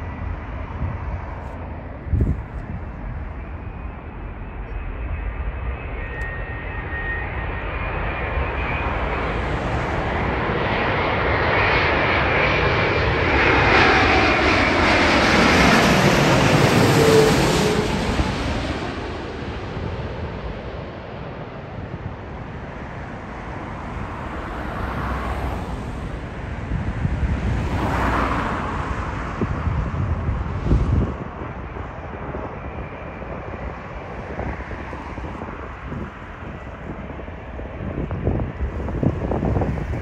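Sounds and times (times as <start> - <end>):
wind buffeting microphone: 0.0 - 4.4, 21.2 - 40.0
distant jet rumble: 0.0 - 40.0
jet engines of airliner: 0.0 - 40.0.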